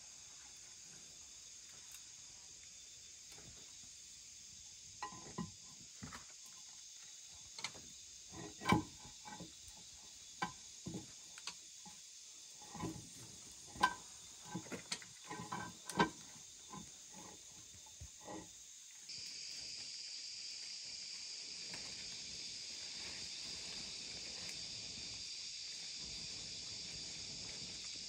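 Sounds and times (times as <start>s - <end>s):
high insect chorus: 0.0s - 28.0s
firewood sticks knocking on stone: 13.7s - 17.4s.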